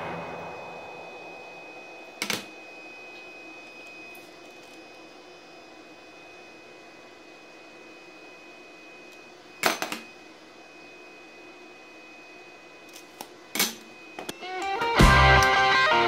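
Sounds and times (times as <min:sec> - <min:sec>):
faint hum with high whine: 0:00.0 - 0:16.0.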